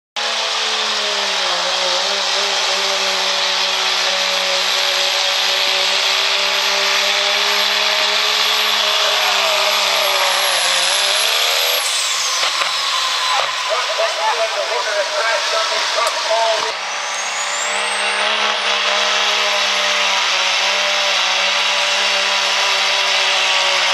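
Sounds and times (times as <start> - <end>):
diesel engine at full throttle: 0.2 - 23.9
thin high whistle: 16.9 - 18.3.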